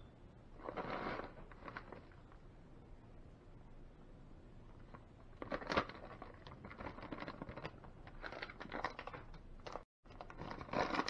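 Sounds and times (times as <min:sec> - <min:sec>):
plastic bag crinkling: 0:00.6 - 0:02.2, 0:04.9 - 0:11.0.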